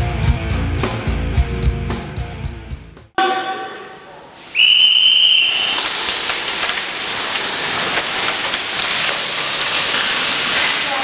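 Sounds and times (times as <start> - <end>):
loud steady hiss: 4.4 - 11.0
sharp whistle blast: 4.5 - 5.8.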